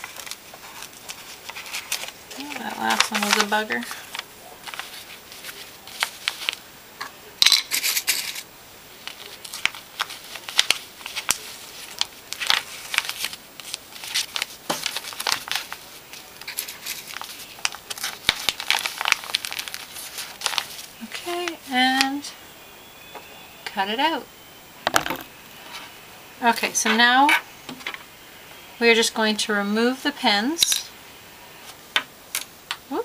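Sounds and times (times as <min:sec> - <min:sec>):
paper rustling and crinkling: 0:00.0 - 0:06.6, 0:07.6 - 0:22.2.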